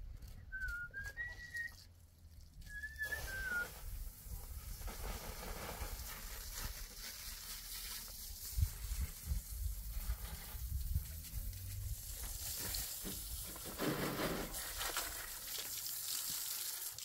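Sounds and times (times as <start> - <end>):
hose water splashing on concrete: 0.0 - 17.0
whistled phrases: 0.4 - 1.9, 2.6 - 3.7.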